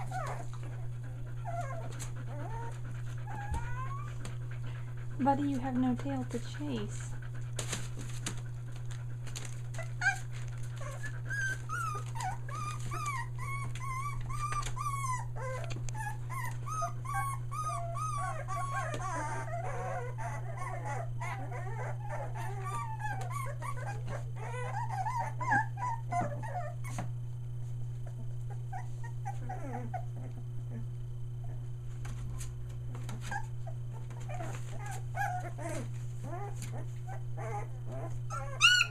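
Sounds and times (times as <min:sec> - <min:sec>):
puppies whimpering and squealing: 0:00.0 - 0:27.2, 0:27.8 - 0:38.9
steady low hum: 0:00.0 - 0:38.9.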